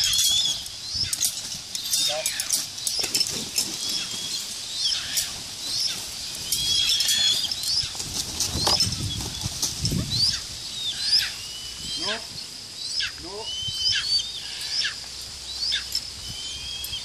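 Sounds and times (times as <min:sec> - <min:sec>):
high-pitched bird chirping: 0:00.0 - 0:03.1, 0:09.9 - 0:17.0
eagle wings beating: 0:00.0 - 0:12.4.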